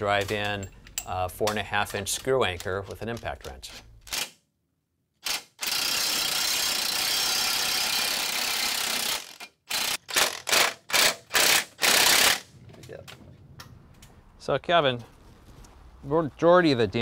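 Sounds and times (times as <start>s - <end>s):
masonry drill boring into concrete: 5.2s - 12.4s
impact wrench bursts: 5.2s - 12.5s.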